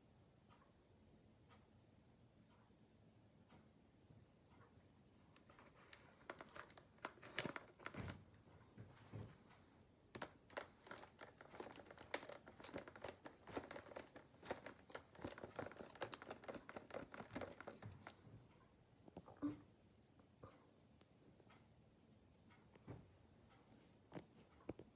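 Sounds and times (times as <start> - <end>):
plastic toy crinkling and clicking: 5.4 - 8.2, 10.1 - 18.2.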